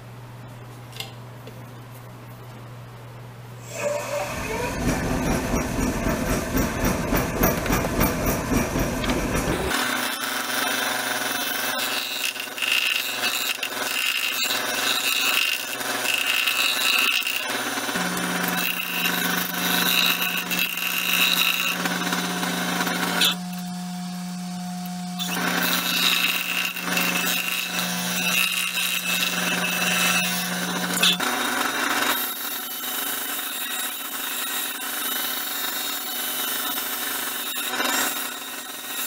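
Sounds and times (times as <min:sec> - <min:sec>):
turning tool cutting wood: 0:03.6 - 0:39.0
lathe motor hum: 0:03.7 - 0:33.3.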